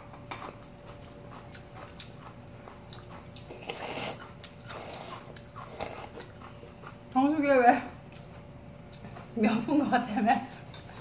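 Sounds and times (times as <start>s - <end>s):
light chewing with clicks: 0.0s - 11.0s
noodles being slurped: 3.4s - 6.3s.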